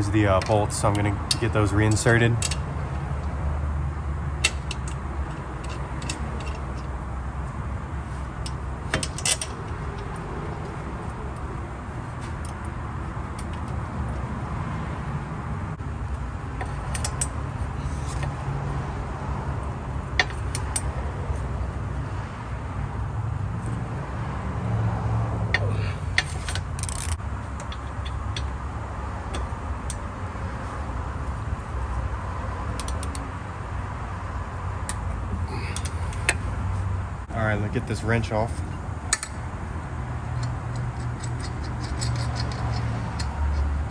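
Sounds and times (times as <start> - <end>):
ratcheting wrench clicks: 4.4 - 6.9, 25.5 - 28.5, 32.7 - 33.3, 39.1 - 39.5, 40.2 - 43.9.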